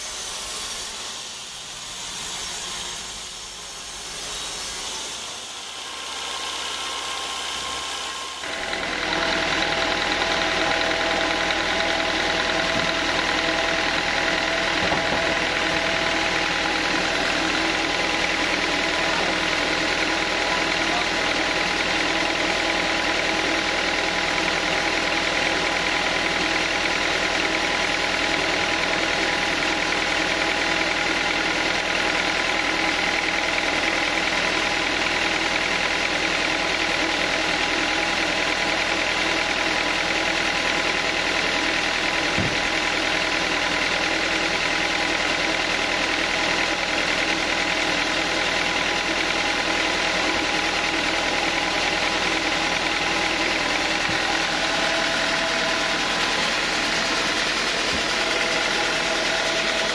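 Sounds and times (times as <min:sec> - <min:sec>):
band sawmill running: 0:00.0 - 0:59.9
low thump: 0:42.4 - 0:42.6.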